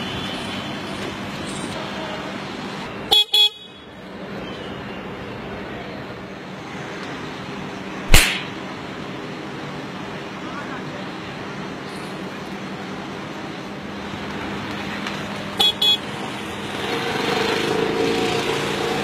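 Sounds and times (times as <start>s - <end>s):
street and engine noise: 0.0s - 19.0s
loud sharp smack: 8.1s - 8.6s.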